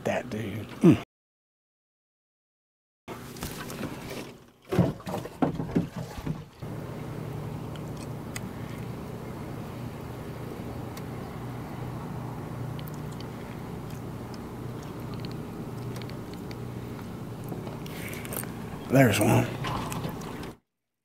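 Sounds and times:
faint water and wind: 4.3s - 20.6s
knocks and rattles on boat deck: 4.7s - 6.5s
low hum: 6.6s - 20.6s.

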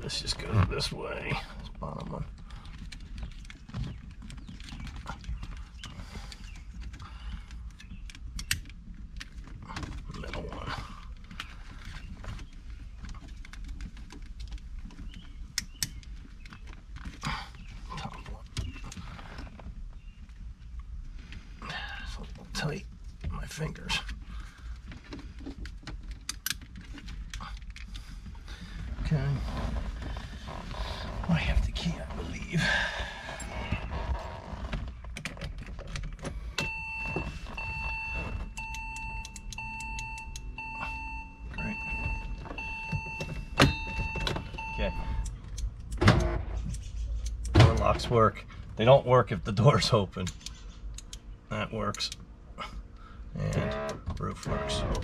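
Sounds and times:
sharp clicks: 2.4s - 9.3s, 38.6s - 40.5s, 45.2s - 47.9s, 50.2s - 51.3s
dashboard warning beep: 36.6s - 45.4s.

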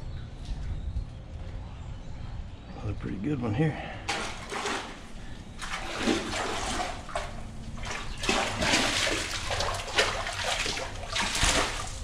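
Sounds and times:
fish splashing at the surface: 4.1s - 12.0s.

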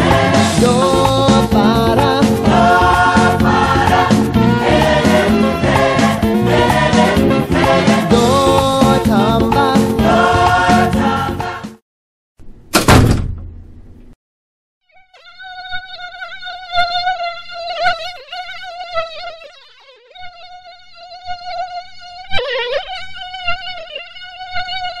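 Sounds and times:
loud thump: 12.7s - 13.8s
mosquito whine: 14.9s - 25.0s.

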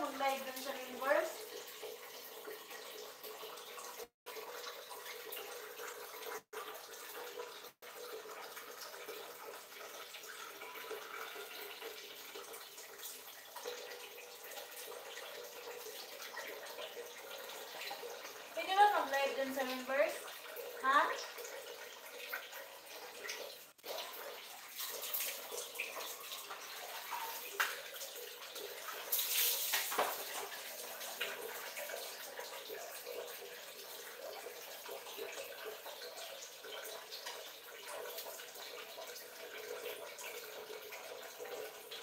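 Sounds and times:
water splashing on tiled floor: 20.8s - 33.5s.

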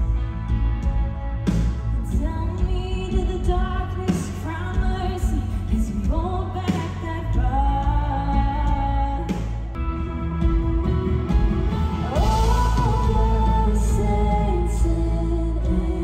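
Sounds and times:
heavy bass: 0.0s - 16.0s
worship band playing live: 0.0s - 16.0s
lead singer singing: 11.9s - 16.0s.

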